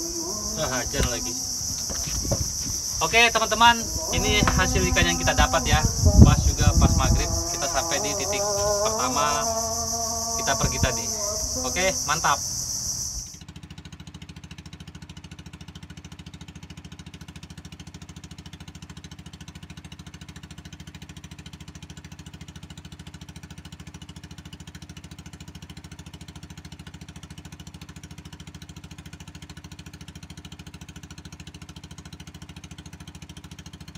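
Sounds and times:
boat engine pulsing: 0.0 - 13.4.

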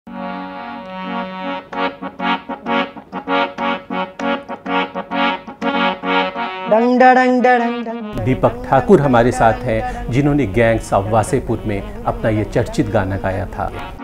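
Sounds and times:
harmonium playing chords: 0.1 - 14.0.

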